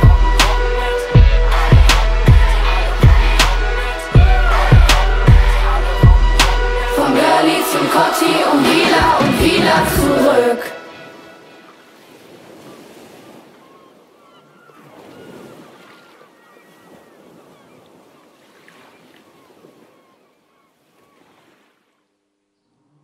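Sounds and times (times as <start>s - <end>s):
ocean waves: 0.0s - 21.9s
faint high calls: 12.6s - 21.5s.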